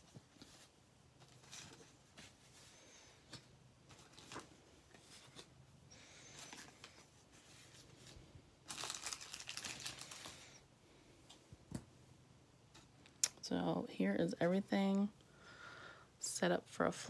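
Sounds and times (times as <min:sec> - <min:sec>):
paper and plastic crinkling: 0:03.8 - 0:05.5, 0:06.2 - 0:10.6.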